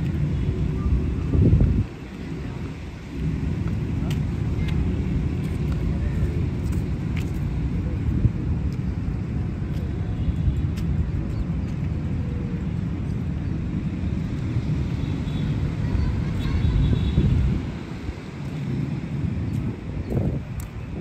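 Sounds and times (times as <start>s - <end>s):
distant traffic rumble: 0.0s - 21.0s.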